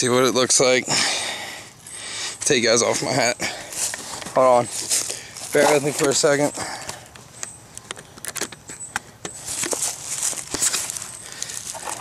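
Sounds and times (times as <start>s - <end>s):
dry leaves crackling underfoot: 2.5s - 7.0s, 9.3s - 12.0s.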